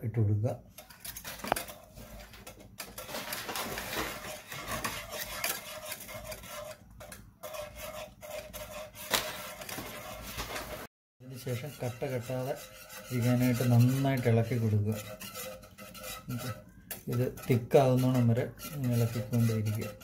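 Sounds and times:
whisk scraping metal saucepan: 0.7s - 20.0s
whisk wires clinking against pan: 11.4s - 20.0s.

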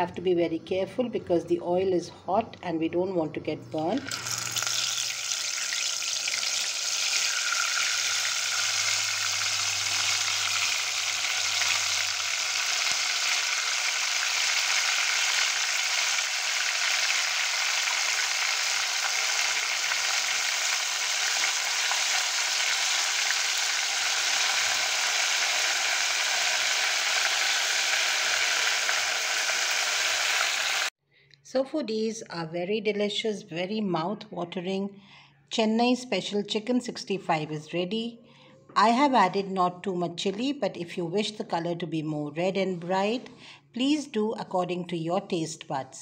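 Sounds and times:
oil sizzling while deep-frying: 4.0s - 30.9s.

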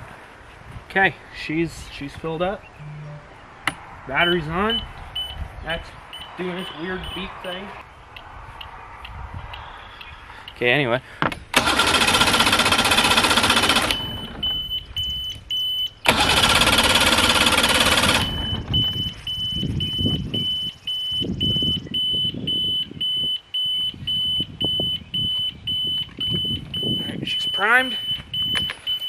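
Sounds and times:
short high warning beeps: 2.8s - 3.4s, 18.2s - 29.0s
outboard motor electric starter cranking: 11.5s - 14.4s, 16.0s - 18.7s.

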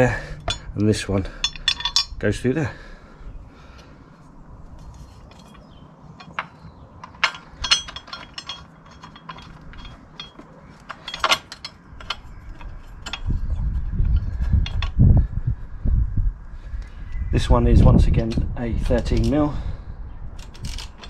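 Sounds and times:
low rumbling noise: 0.0s - 18.9s
metal clinks and clicks: 1.4s - 2.2s, 5.3s - 13.7s.

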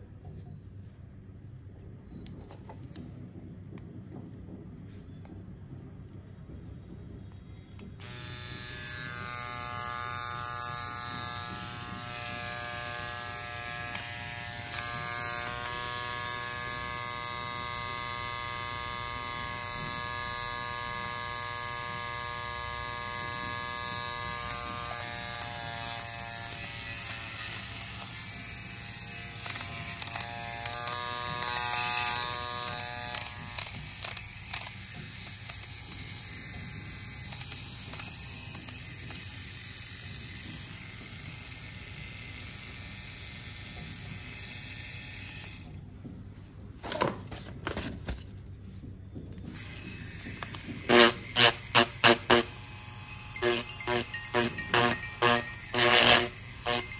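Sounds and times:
electric motor buzz: 8.0s - 45.8s, 49.5s - 56.9s.

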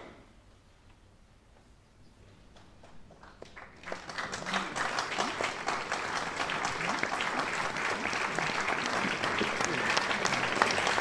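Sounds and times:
audience applause: 2.8s - 11.0s.

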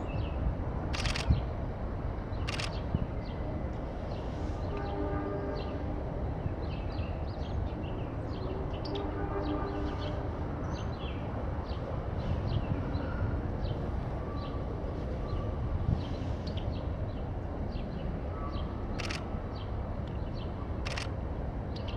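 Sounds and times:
sharp clicks: 1.0s - 1.4s, 2.5s - 2.8s, 19.0s - 19.3s.

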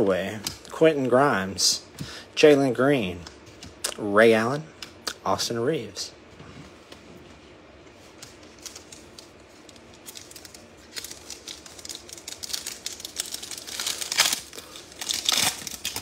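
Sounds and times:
foil wrapper crinkling: 8.1s - 16.0s.

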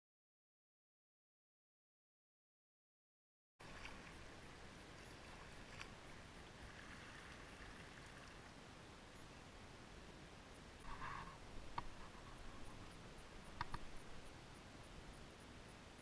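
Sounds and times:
water lapping and dripping: 3.6s - 8.6s.

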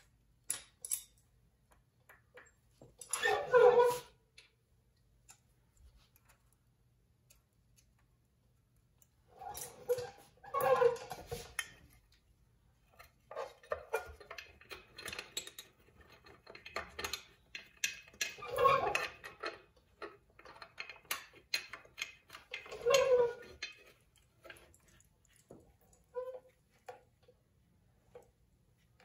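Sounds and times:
light metal clicks and clinks: 0.4s - 1.3s.

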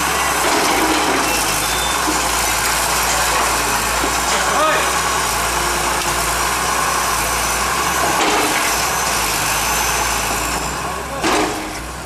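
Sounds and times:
excavator diesel engine running: 0.0s - 12.0s.

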